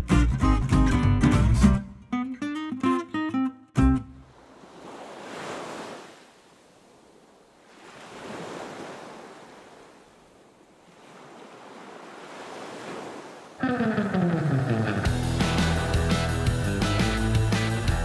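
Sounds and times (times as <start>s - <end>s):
wind: 4.0s - 15.8s
sea waves washing in: 4.2s - 17.2s.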